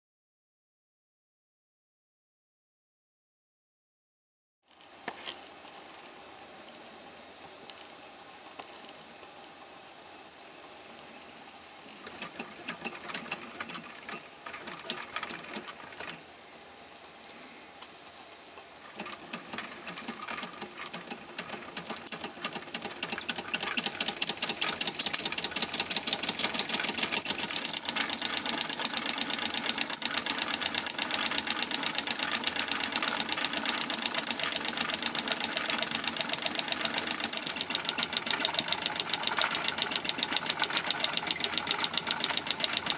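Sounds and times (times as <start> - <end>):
steam engine chain drive clatter: 11.8 - 16.2, 18.8 - 42.9.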